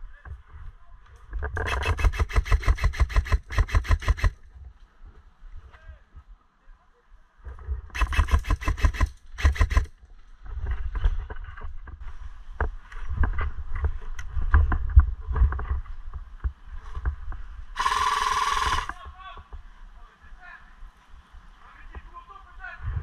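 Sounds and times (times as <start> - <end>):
airsoft gun rapid clicks: 1.6 - 4.4, 7.9 - 9.9, 17.8 - 19.0
buzzing gun burst: 1.6 - 4.4, 8.0 - 9.9, 17.8 - 19.0.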